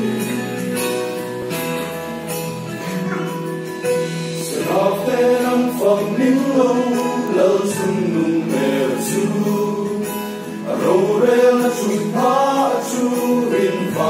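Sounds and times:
sustained instrumental chords: 0.0s - 14.0s
choir singing a hymn: 4.4s - 14.0s.

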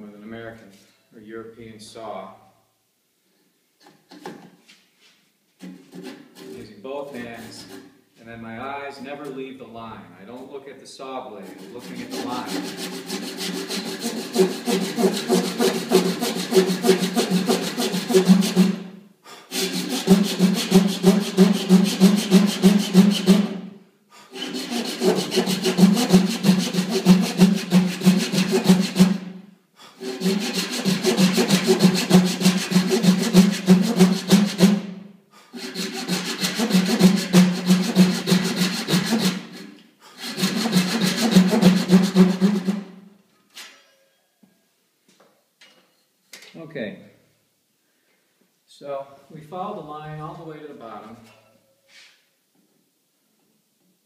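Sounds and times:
handsaw cutting wood: 5.8s - 6.6s, 11.4s - 23.6s, 24.2s - 34.9s, 35.5s - 42.9s.

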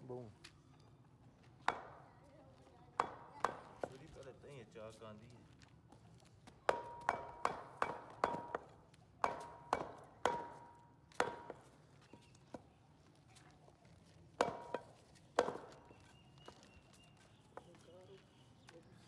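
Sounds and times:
knife chopping on wooden block: 6.7s - 11.7s.

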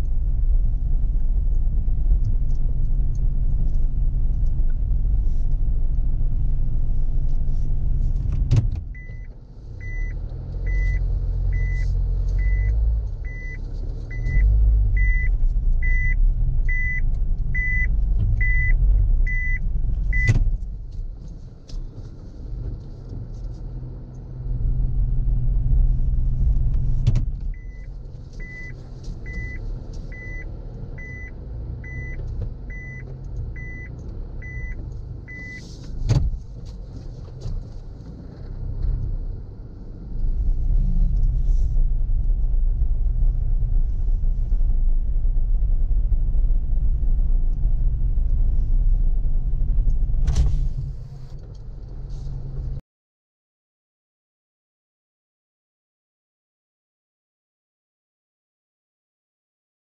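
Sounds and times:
loud low rumble: 39.2s - 52.7s.

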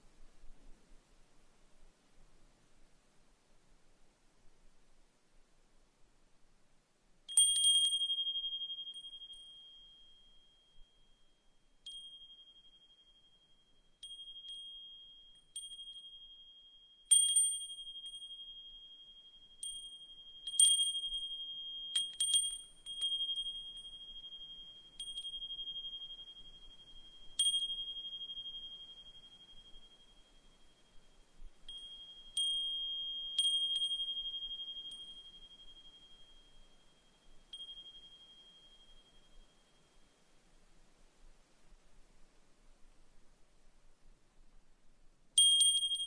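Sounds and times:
brass wind chime ringing: 7.3s - 11.2s, 11.9s - 40.1s.

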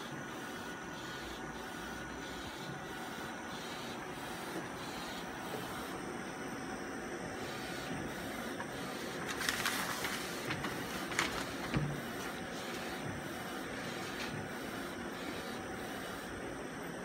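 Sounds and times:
printer carriage sweeping: 8.7s - 14.6s.

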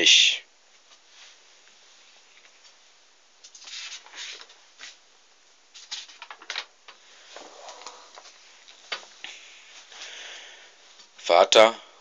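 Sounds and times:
low steady hiss: 0.0s - 12.0s
rustling and handling noises: 0.7s - 5.1s, 5.7s - 10.1s.

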